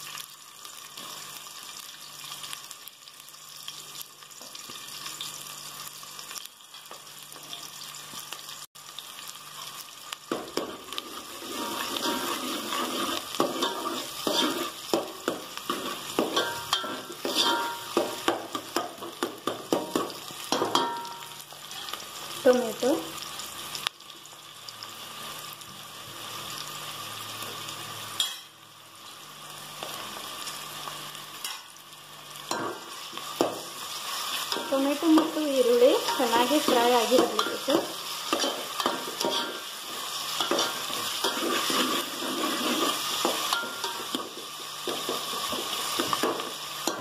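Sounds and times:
onions sizzling in hot oil: 0.0 - 47.0
spoon scraping a metal pot: 10.7 - 14.8, 15.7 - 17.9, 36.0 - 39.7, 40.4 - 44.1.

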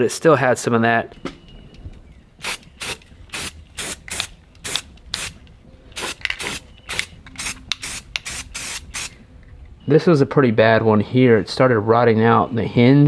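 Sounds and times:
spray paint can hissing: 2.4 - 5.4, 6.0 - 9.2.

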